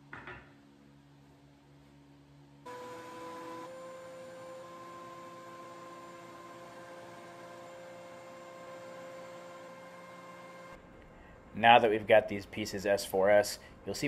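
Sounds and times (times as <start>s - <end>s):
thickness planer running: 2.7s - 10.8s.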